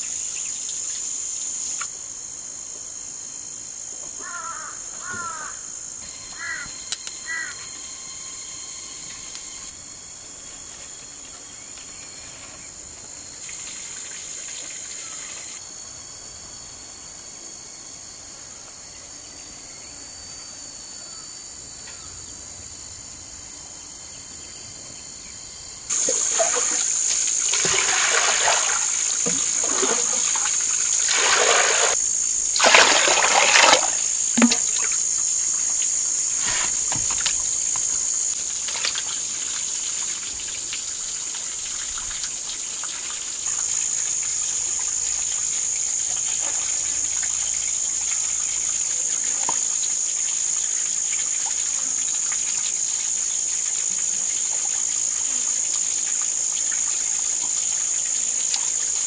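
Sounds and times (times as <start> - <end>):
high-pitched insect buzz: 0.0 - 1.9, 3.3 - 15.9, 25.0 - 40.4, 43.4 - 59.0
water splashing into basket: 25.9 - 35.1.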